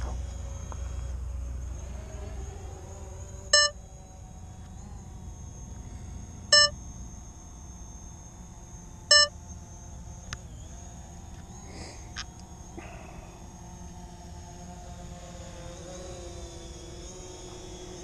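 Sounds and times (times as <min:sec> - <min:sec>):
faint steady whine: 0:00.0 - 0:18.0
short electronic beeps: 0:03.5 - 0:03.8, 0:06.5 - 0:06.8, 0:09.1 - 0:09.3.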